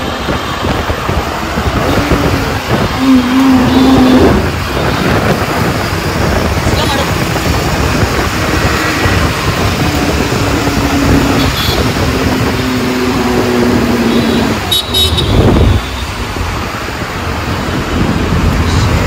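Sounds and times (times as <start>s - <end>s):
vehicle passing by: 0.0s - 14.7s
busy street traffic: 0.0s - 19.0s
car horns honking: 1.8s - 5.8s, 10.8s - 16.2s.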